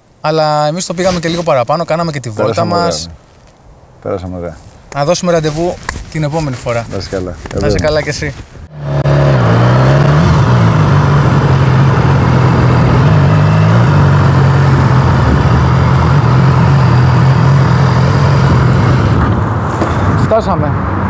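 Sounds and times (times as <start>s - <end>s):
motorcycle engine revving: 8.6s - 20.1s.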